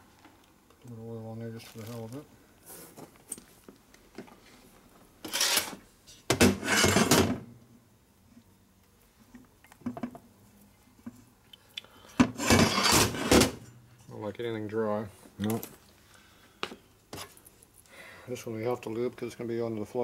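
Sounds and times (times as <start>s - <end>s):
metal part scraping on workbench: 5.2s - 5.8s, 6.5s - 7.4s, 12.3s - 13.6s.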